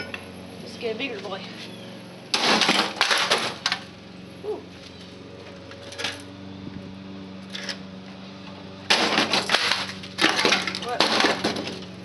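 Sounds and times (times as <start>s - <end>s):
debris knocking: 2.3s - 3.8s, 8.9s - 11.8s
plastic and metal crashing on concrete: 2.3s - 3.8s, 8.9s - 11.9s.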